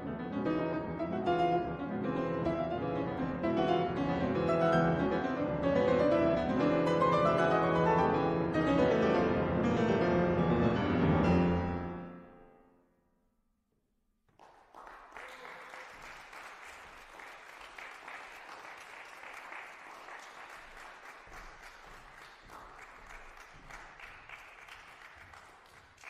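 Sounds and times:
audience clapping: 14.3s - 26.0s.

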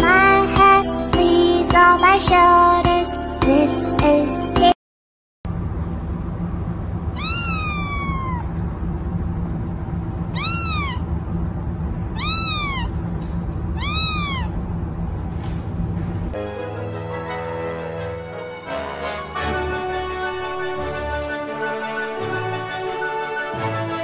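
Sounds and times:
low background hum: 5.5s - 22.2s
kitten meowing: 7.1s - 8.6s, 10.3s - 11.1s, 12.1s - 13.0s, 13.8s - 14.6s.

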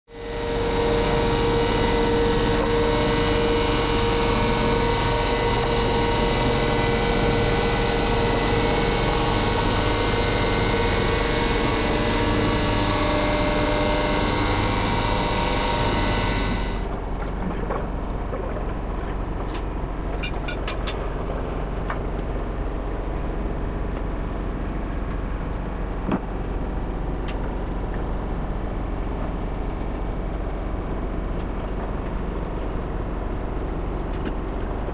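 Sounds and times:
low hum: 0.1s - 34.9s
lifting jacks whining: 0.5s - 17.9s.

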